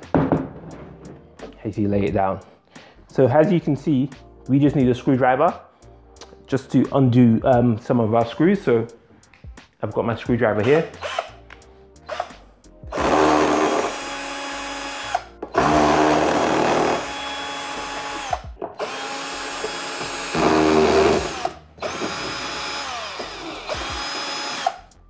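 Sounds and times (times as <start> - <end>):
cordless drill motor: 10.7 - 11.4, 12.9 - 24.9.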